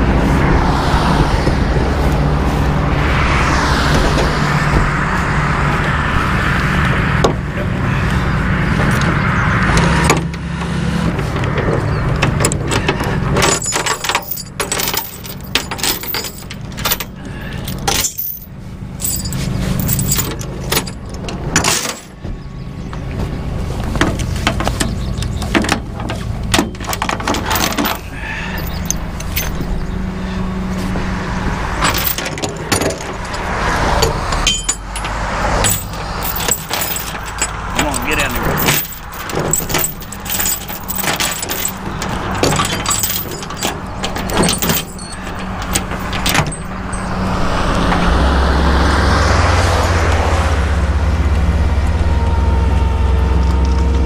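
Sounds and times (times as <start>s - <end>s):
truck engine running: 0.0s - 54.0s
chains clinking on steel deck: 12.3s - 22.2s, 24.4s - 29.8s, 31.8s - 47.4s.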